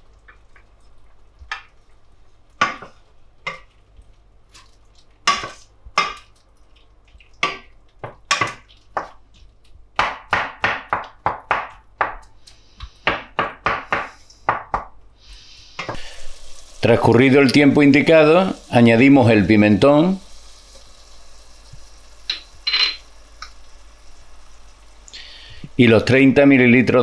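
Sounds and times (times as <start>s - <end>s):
wooden spoon stirring in a pot: 0.1s - 9.7s.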